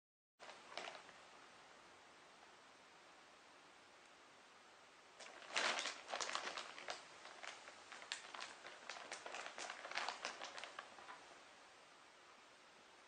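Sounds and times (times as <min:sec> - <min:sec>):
plastic bag crinkling: 0:00.4 - 0:01.2, 0:05.2 - 0:11.4.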